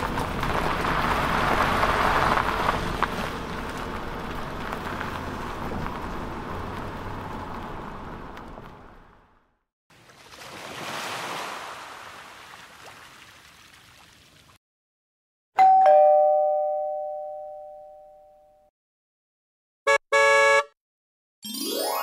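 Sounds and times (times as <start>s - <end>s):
two-note chime: 15.6s - 18.7s.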